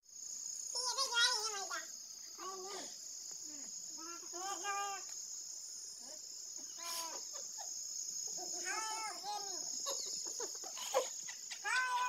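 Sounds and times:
crickets chirring: 0.0s - 12.0s.

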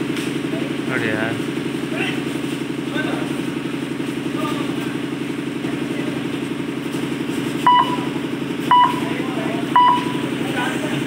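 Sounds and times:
pulsing engine drone: 0.0s - 11.0s
short electronic beeps: 7.7s - 10.3s.

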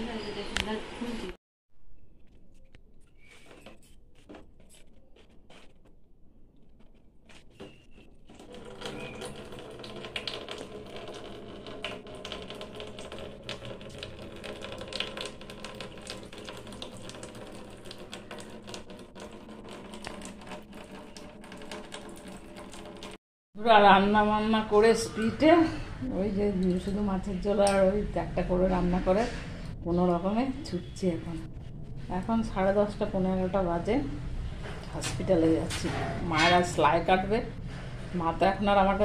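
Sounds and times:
water trickling into plastic basin: 6.5s - 23.2s.

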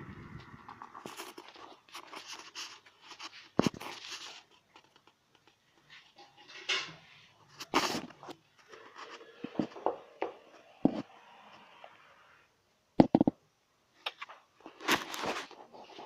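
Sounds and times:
scraping rustle: 0.6s - 9.8s.

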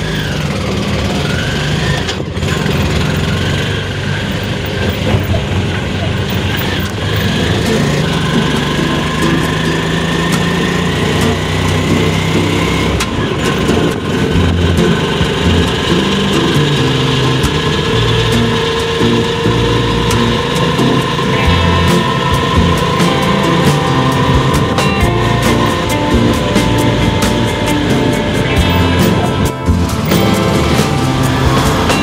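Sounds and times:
auto-rickshaw engine running: 0.0s - 32.0s
rising whine: 6.8s - 32.0s.

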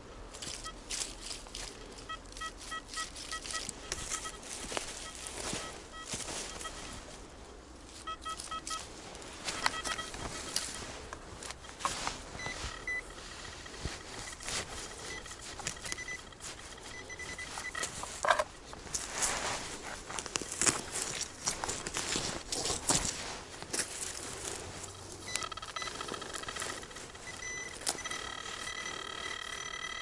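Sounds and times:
crunching and rustling on ground: 0.0s - 30.0s
metal detector short beeps: 2.0s - 7.2s, 8.0s - 8.9s, 9.5s - 18.6s, 24.9s - 30.0s.

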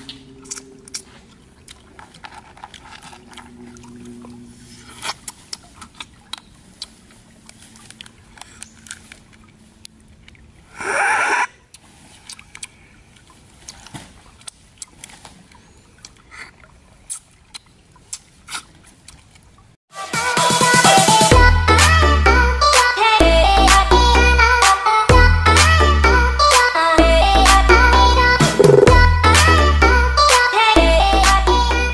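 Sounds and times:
chewing: 0.0s - 10.5s, 11.7s - 19.5s
music: 19.9s - 31.9s.

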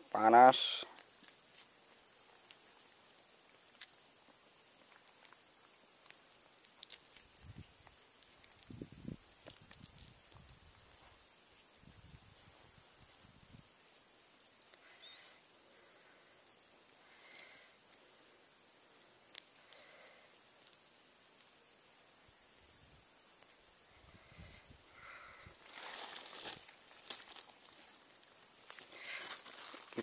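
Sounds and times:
high-pitched insect trill: 0.0s - 30.0s
handling rustles: 25.6s - 28.0s, 28.6s - 30.0s.

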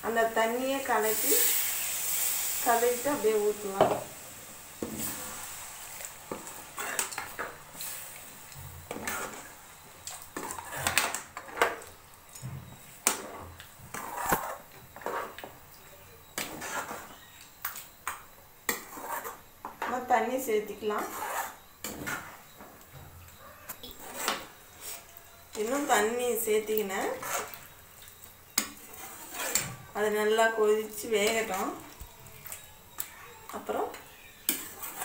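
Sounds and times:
ladle scraping a steel pan: 23.9s - 26.1s, 27.0s - 27.7s, 28.8s - 29.8s, 34.5s - 35.0s.

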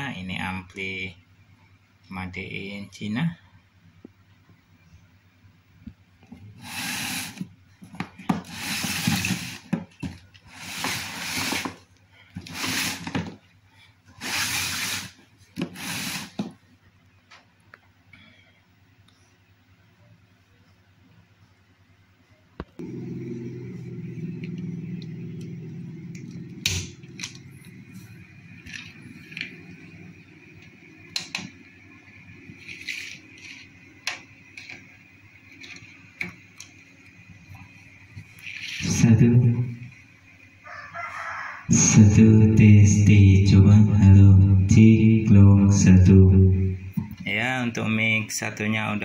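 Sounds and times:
rubbing and scraping: 8.2s - 11.8s, 12.4s - 13.4s, 14.1s - 16.6s
amplifier hum: 22.6s - 49.0s.

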